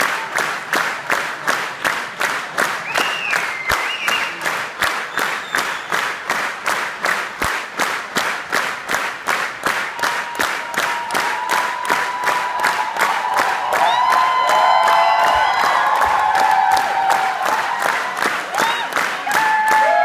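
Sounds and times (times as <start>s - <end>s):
audience clapping in unison: 0.0s - 20.0s.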